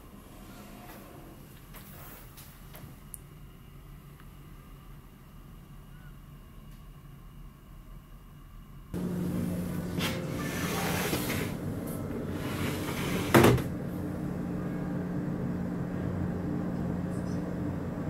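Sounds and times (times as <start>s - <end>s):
ship's steady low hum: 2.6s - 18.0s
sliding screens rubbing and rattling: 9.8s - 13.7s.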